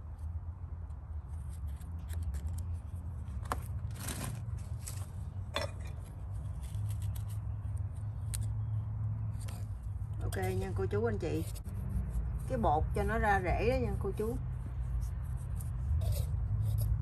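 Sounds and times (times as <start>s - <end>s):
knife scraping bark: 5.6s - 17.0s.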